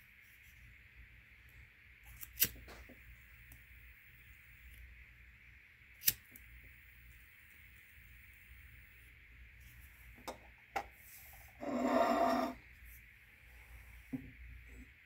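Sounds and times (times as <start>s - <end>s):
lighter clicks: 6.0s - 6.4s.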